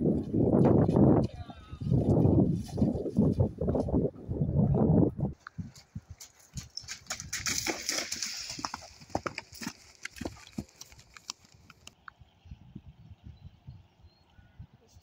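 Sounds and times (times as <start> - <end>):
horse hoofbeats on grass: 5.5 - 12.0.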